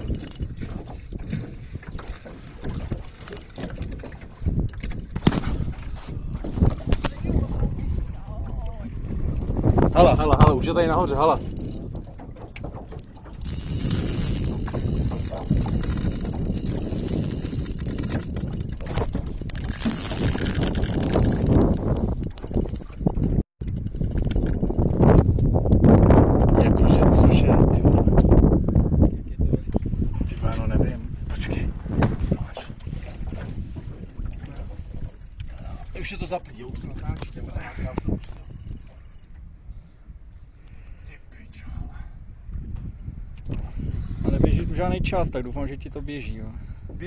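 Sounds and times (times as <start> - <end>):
water lapping against boat hull: 0.0 - 47.0
wind rumbling on microphone: 0.0 - 47.0
faint clicks: 11.4 - 11.8, 12.4 - 26.9, 34.6 - 35.8.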